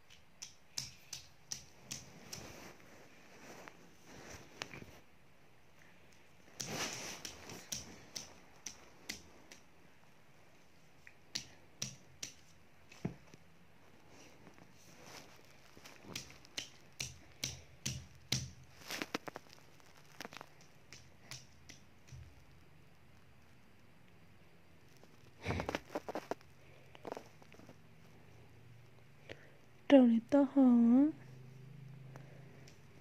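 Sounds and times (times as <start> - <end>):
baby slapping a poster: 6.6 - 9.7, 15.8 - 19.4.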